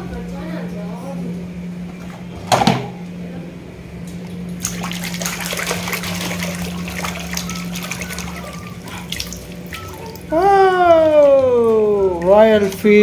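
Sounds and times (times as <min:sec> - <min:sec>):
water sloshing in plastic basin: 0:04.2 - 0:10.3, 0:11.0 - 0:13.0.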